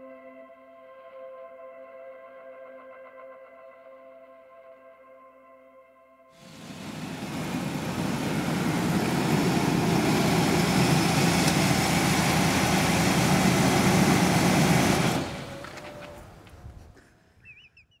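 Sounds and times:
van engine idling: 0:06.4 - 0:17.0.

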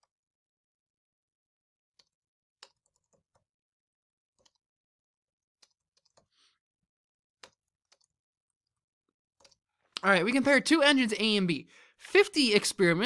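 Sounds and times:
faint keyboard typing: 0:02.0 - 0:03.5, 0:04.4 - 0:04.6, 0:05.6 - 0:06.4, 0:07.4 - 0:08.8, 0:09.4 - 0:10.1.

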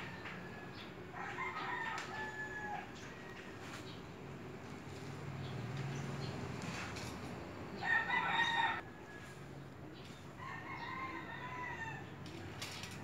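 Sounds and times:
rooster crowing: 0:00.0 - 0:03.6, 0:07.8 - 0:09.4, 0:10.4 - 0:12.2.

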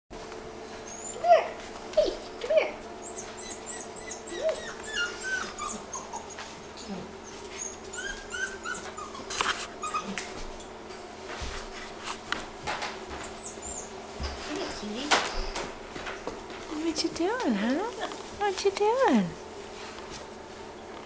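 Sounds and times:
puppies whimpering and yipping: 0:00.8 - 0:01.6, 0:03.0 - 0:10.8, 0:13.1 - 0:14.0.

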